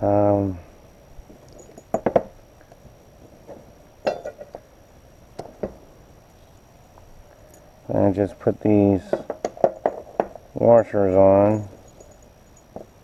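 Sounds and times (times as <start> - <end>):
metal bolts and washers clinking: 1.5 - 2.3, 3.5 - 4.6, 11.1 - 13.0.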